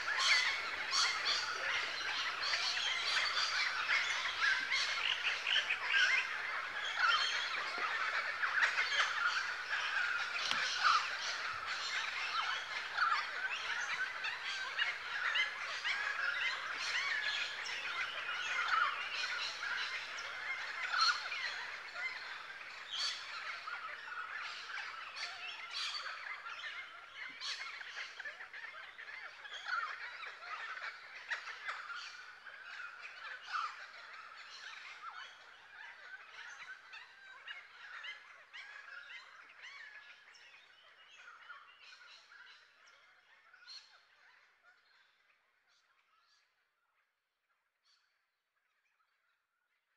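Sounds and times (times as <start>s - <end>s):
birds chattering: 0.0s - 28.2s.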